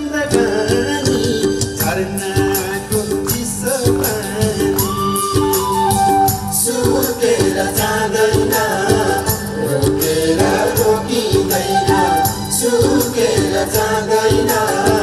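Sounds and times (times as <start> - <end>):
man singing folk song: 0.0 - 5.1
band accompaniment: 0.0 - 15.0
percussion beat: 0.1 - 15.0.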